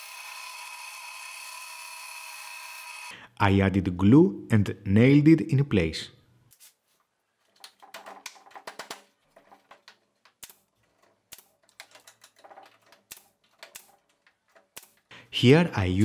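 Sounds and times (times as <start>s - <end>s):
clicks and taps of wood and tools: 7.5s - 15.0s.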